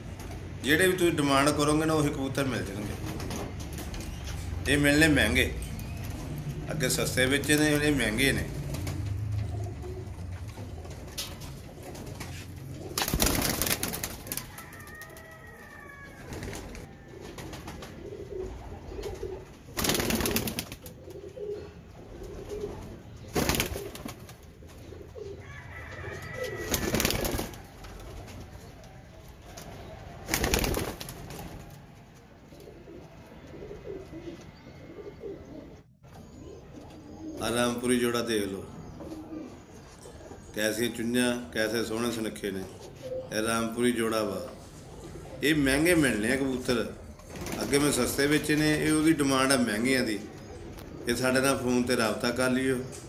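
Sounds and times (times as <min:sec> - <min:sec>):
pigeons cooing: 0:02.7 - 0:31.6, 0:32.3 - 0:53.0.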